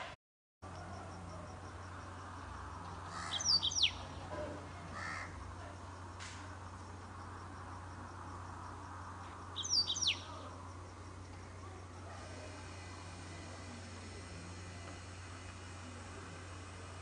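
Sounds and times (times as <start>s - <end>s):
steady low hum: 0.0s - 17.0s
bird chirps: 3.2s - 4.1s, 9.6s - 10.4s.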